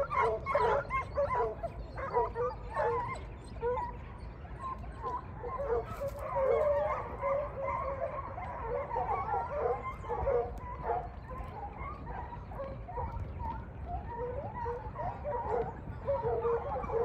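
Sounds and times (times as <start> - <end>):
hounds baying and yelping: 0.0 - 17.0.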